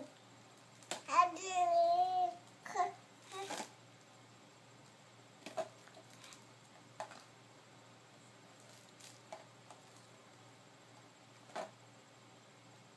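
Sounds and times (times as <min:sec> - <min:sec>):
baby handling plastic toy: 0:03.2 - 0:03.8, 0:05.4 - 0:07.3.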